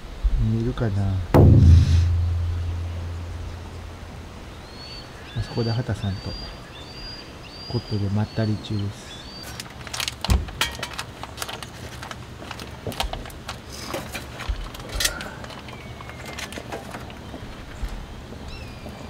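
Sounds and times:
camping gear clicking and rattling: 9.5 - 18.0.

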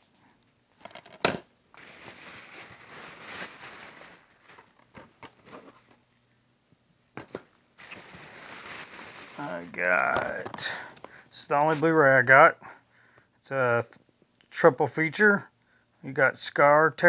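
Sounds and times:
plastic wrap crinkling: 1.7 - 6.2, 7.8 - 11.2.

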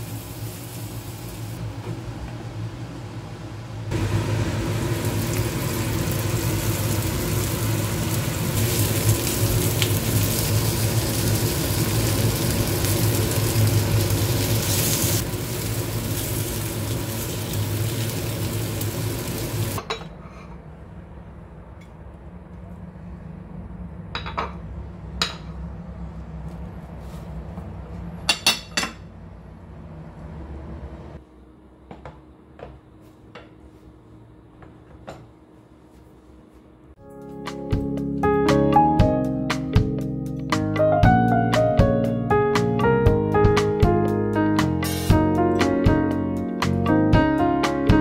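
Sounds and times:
fish sizzling in a frying pan: 4.8 - 19.8.

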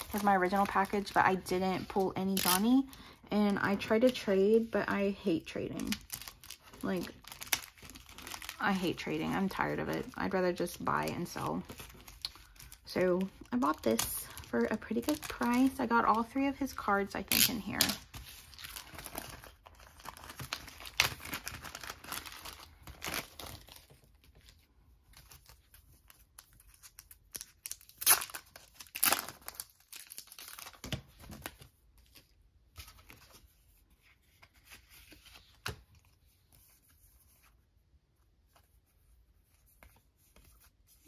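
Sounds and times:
crinkly plastic packaging: 0.0 - 33.5
pack tearing open: 27.0 - 31.0.

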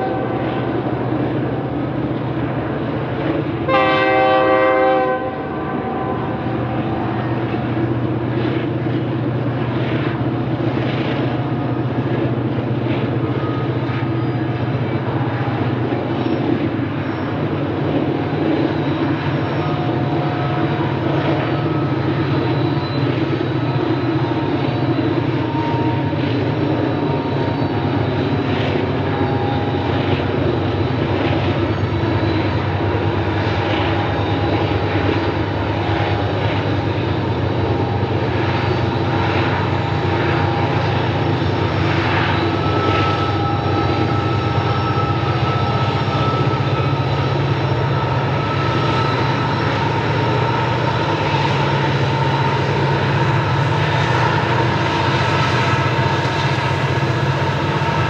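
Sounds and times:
locomotive engine drone: 0.0 - 58.0
high whining tones: 13.2 - 58.0.

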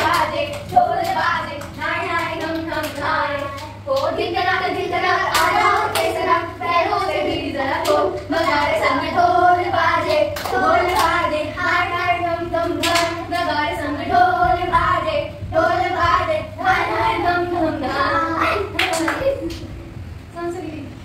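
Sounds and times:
hand claps: 5.3 - 6.1, 10.1 - 11.2, 12.8 - 13.2, 18.7 - 19.6.

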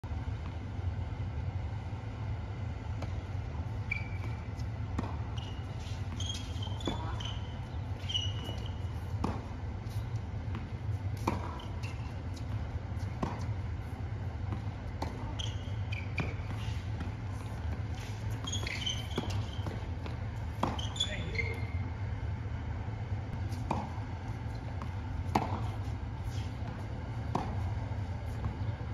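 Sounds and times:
shoe squeaks: 3.7 - 10.1, 11.2 - 13.5, 15.0 - 21.9
racket hitting ball: 4.3 - 21.2, 23.5 - 28.6.

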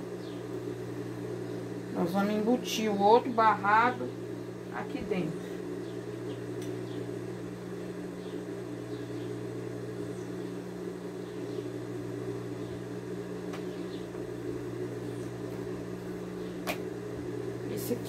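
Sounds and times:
low mechanical appliance hum: 0.0 - 18.0.

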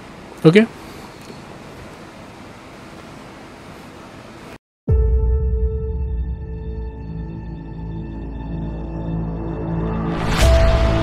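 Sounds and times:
sustained low-toned background music: 4.9 - 11.0.

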